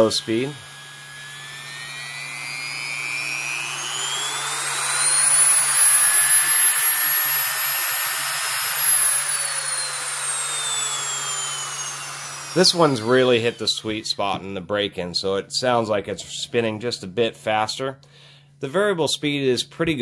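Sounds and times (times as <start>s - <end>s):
rotary tool motor whine: 0.0s - 14.0s.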